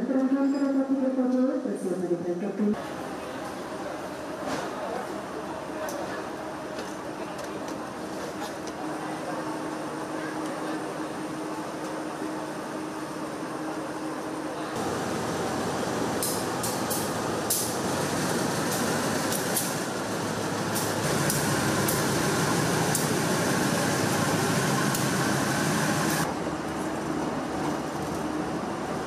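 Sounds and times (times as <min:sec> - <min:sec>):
diesel locomotive engine: 0:02.8 - 0:29.0
train cars rumbling past: 0:10.8 - 0:29.0.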